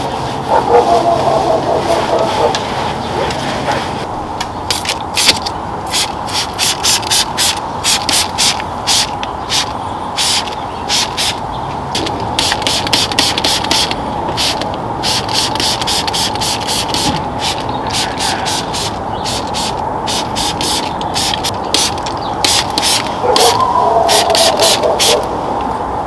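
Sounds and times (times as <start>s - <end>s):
spray bottle squirts: 4.7s - 11.4s, 12.4s - 25.2s.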